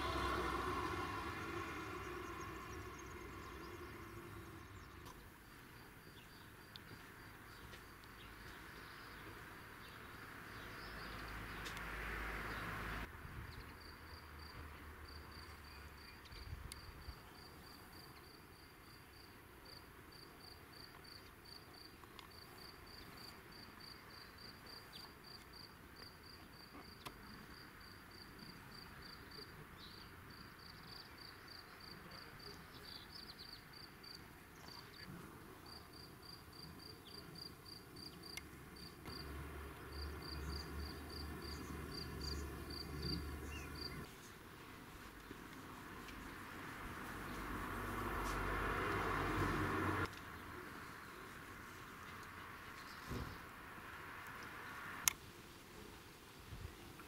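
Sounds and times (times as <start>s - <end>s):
loud rushing noise: 0.0s - 4.9s
cricket chirping: 0.0s - 8.1s, 13.5s - 44.2s.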